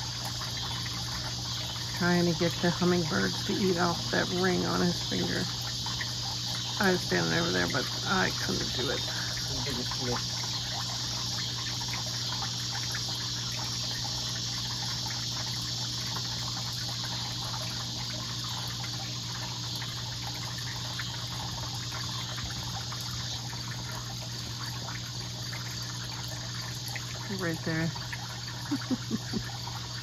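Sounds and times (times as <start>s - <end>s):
low mechanical hum: 0.0s - 30.0s
high-pitched hiss: 1.6s - 10.6s.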